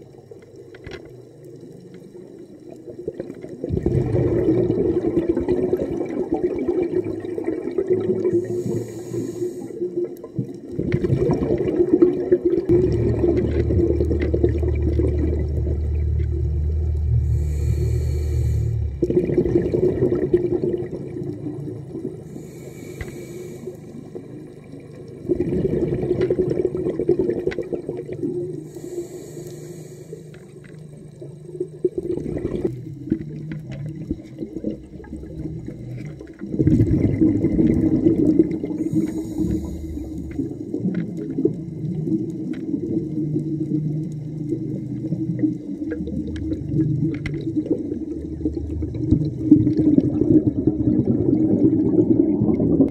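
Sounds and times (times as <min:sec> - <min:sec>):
rushing bubbles: 0:01.5 - 0:29.3, 0:30.6 - 0:52.9
underwater breathing hisses: 0:08.3 - 0:10.0, 0:17.1 - 0:19.0, 0:22.2 - 0:24.2, 0:28.5 - 0:30.6, 0:38.6 - 0:40.5.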